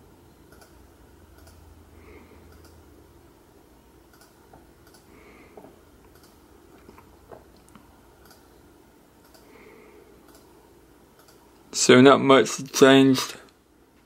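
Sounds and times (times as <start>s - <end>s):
computer mouse clicks: 0.5s - 1.6s, 2.5s - 2.8s, 4.1s - 5.1s, 6.1s - 7.0s, 7.6s - 8.5s, 9.2s - 9.5s, 10.2s - 10.5s, 11.2s - 11.4s.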